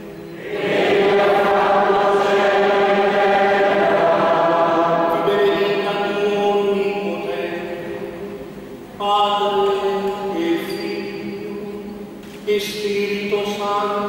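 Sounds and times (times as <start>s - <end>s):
congregation chanting: 0.4s - 8.2s.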